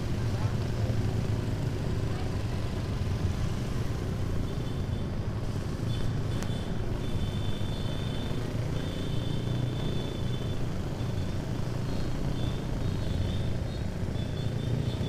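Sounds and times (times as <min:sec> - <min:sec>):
motorcycle engine drone: 0:00.0 - 0:15.0
wind and road noise: 0:00.0 - 0:15.0.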